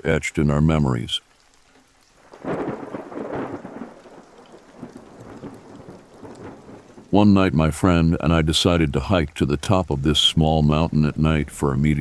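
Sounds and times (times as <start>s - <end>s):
rain hiss: 0.0s - 12.0s
thunder rolling: 2.3s - 8.2s.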